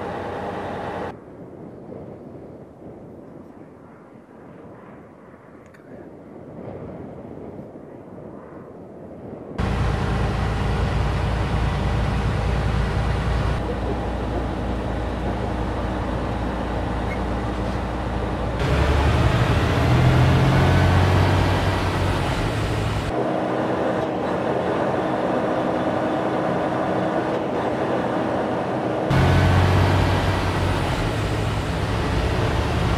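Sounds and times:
heavy truck engine drone: 0.0s - 1.1s, 9.6s - 32.9s
road noise: 0.0s - 1.2s, 9.6s - 32.9s.

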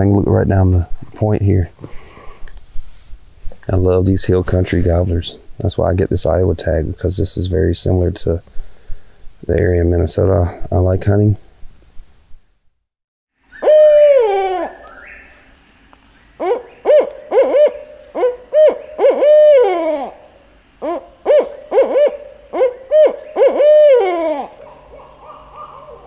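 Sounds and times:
owl hooting: 13.5s - 15.5s, 16.4s - 26.0s.

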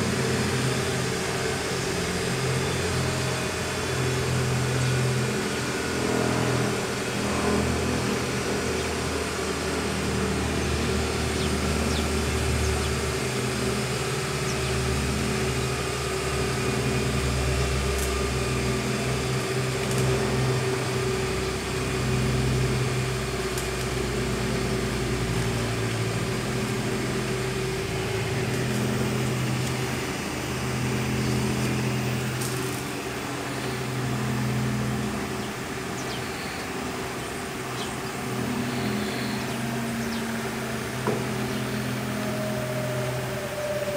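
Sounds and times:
machine hum: 0.0s - 43.9s.

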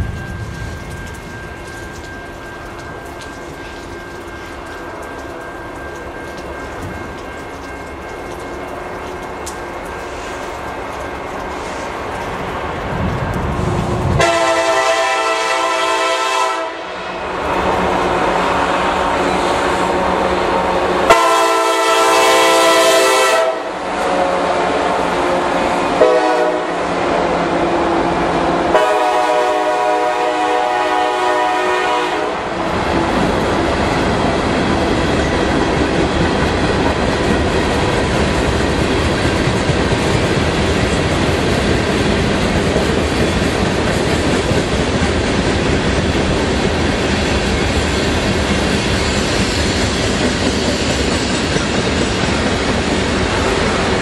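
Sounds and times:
train cars rumbling on rails: 0.0s - 54.0s
locomotive horn blasts: 14.2s - 17.1s, 21.1s - 24.8s, 26.0s - 26.8s, 28.7s - 32.5s.

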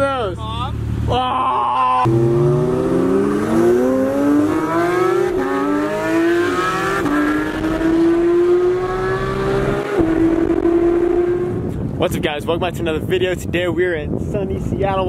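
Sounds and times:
sports car engine accelerating: 2.0s - 11.8s.

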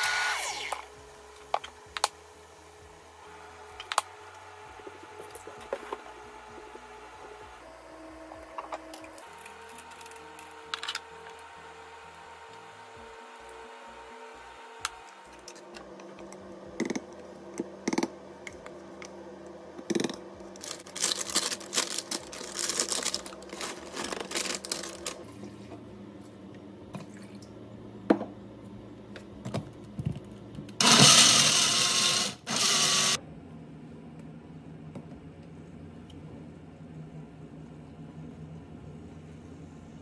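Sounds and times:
blender running: 0.0s - 1.0s, 30.8s - 33.2s
plastic bag rustling: 20.6s - 25.3s.

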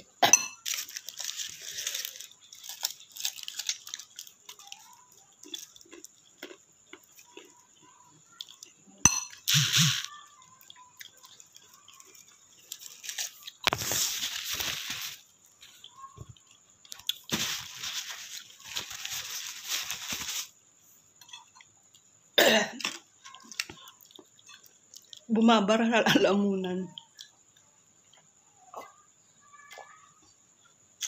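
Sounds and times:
woman coughing: 22.4s - 22.8s, 26.0s - 26.4s.

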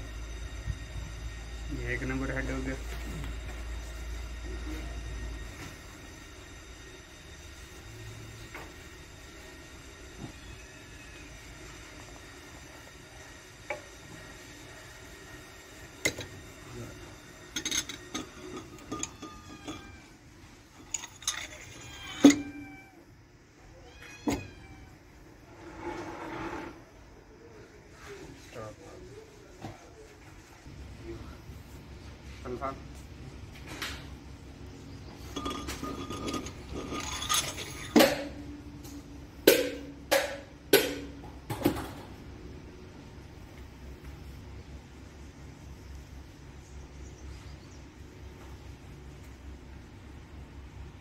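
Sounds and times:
metal scraping and rubbing: 16.0s - 22.7s, 25.4s - 27.0s, 35.1s - 39.0s
metal clanks ringing: 17.5s - 20.1s, 20.7s - 22.7s, 35.3s - 41.2s
metal clinks and knocks: 17.5s - 20.1s, 20.7s - 22.8s, 35.2s - 41.2s.

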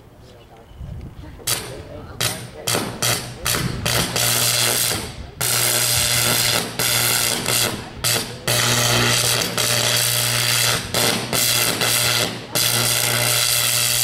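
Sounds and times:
electrical arc buzzing and crackling: 1.5s - 14.0s.

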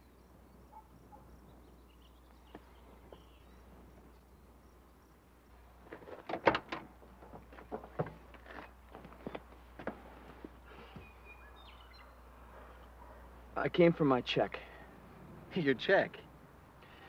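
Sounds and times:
faint outdoor background: 0.0s - 17.0s
knocks and rustles of man climbing: 5.8s - 11.2s.

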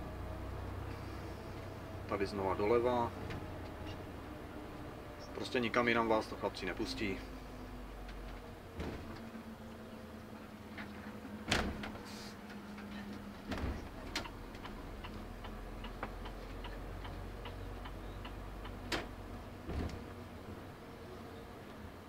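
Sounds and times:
low engine hum: 0.0s - 22.0s
turn signal ticking: 14.2s - 18.9s.

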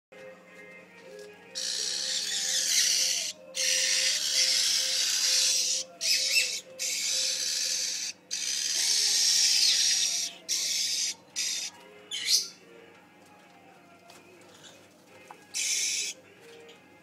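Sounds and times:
nestlings begging with hissy calls: 1.6s - 12.6s, 15.6s - 16.2s.

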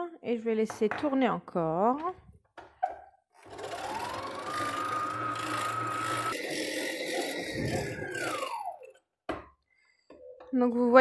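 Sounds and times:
stand mixer motor whining: 3.4s - 9.0s.

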